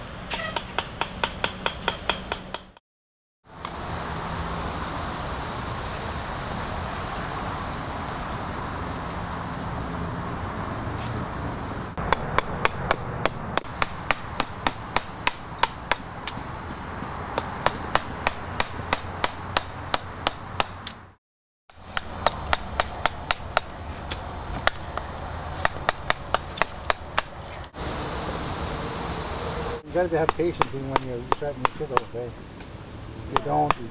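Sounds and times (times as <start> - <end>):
mallet striking chisel into wood: 0.6 - 2.8, 12.0 - 16.4, 30.2 - 32.2, 33.4 - 33.9
rushing background noise: 21.8 - 33.9.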